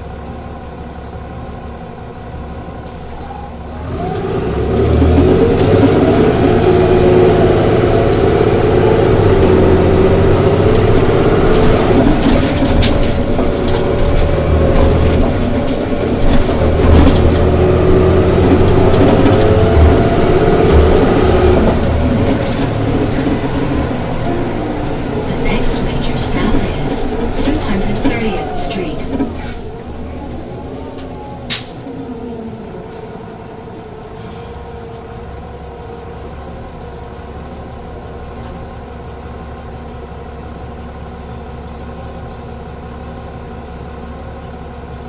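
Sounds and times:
bus engine pulling under power: 0.0 - 45.0.

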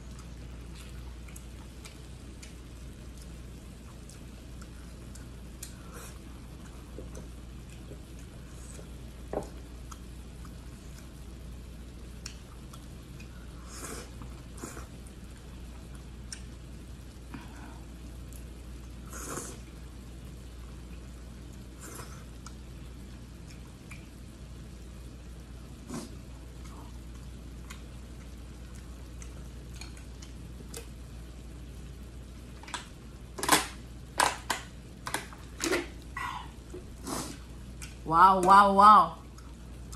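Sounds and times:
wet chewing: 0.0 - 11.2, 12.1 - 16.5, 25.9 - 31.0, 36.0 - 38.0
steady low hum: 0.0 - 39.9
slurping noodles: 37.0 - 37.4.

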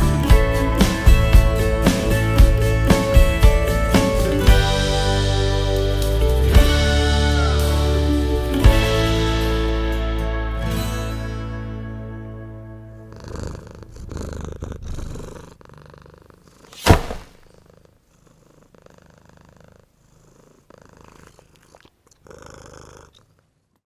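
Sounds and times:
closing music: 0.0 - 13.8
cat purring: 12.9 - 23.8
sharp thunk: 16.8 - 17.5.

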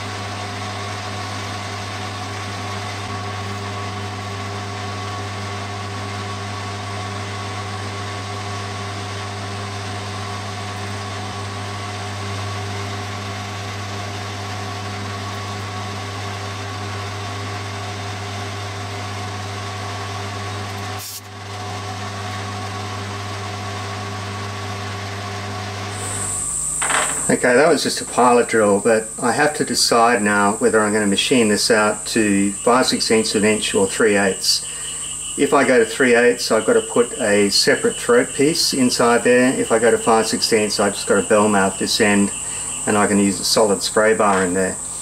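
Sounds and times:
metal lathe running: 0.0 - 45.0
drill boring into metal: 20.4 - 21.5, 25.8 - 45.0.

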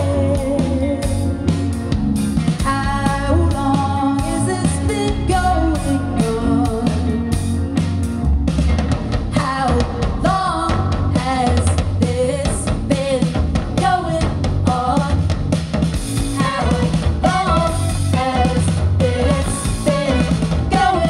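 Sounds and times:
person singing: 0.0 - 1.8, 2.6 - 7.6, 16.4 - 21.0
drum kit: 0.0 - 21.0.

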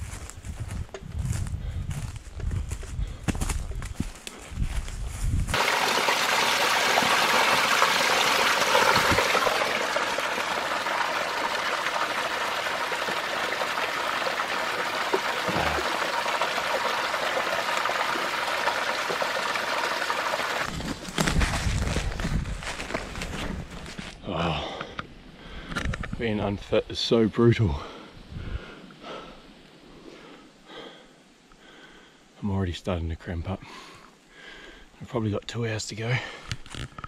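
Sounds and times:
footsteps through bush: 0.0 - 5.5, 20.7 - 24.2
stream running over stones: 5.5 - 22.0.

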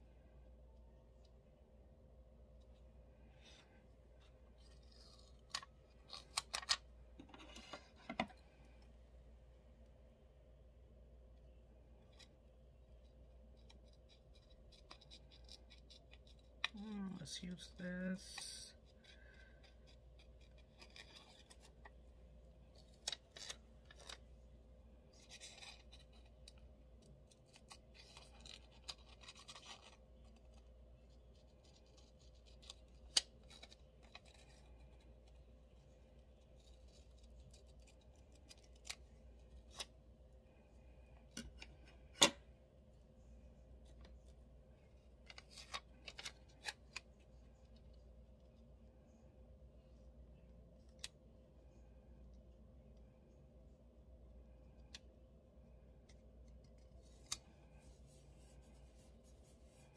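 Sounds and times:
paper rustling: 27.2 - 39.9.

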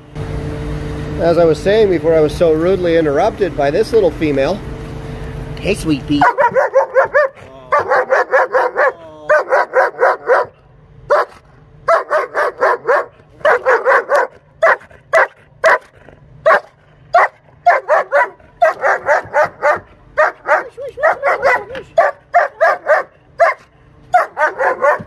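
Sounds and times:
dog barking rapidly: 6.2 - 25.0.

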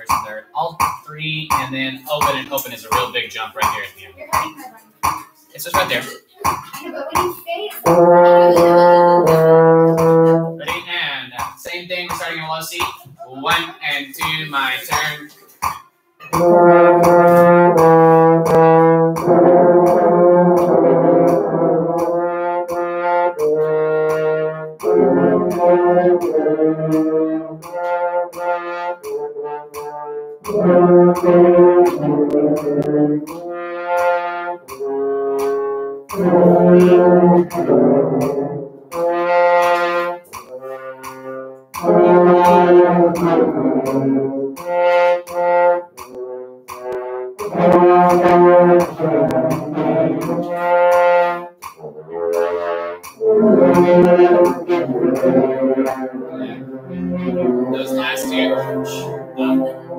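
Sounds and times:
french horns playing notes: 7.8 - 11.1, 16.2 - 59.9.

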